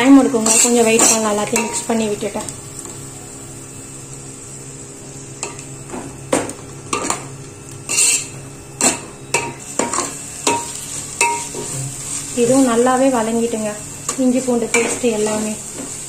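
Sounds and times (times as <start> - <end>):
low frying sizzle: 0.0 - 16.0
metal spoon scraping a pot: 0.4 - 1.9, 7.9 - 12.3.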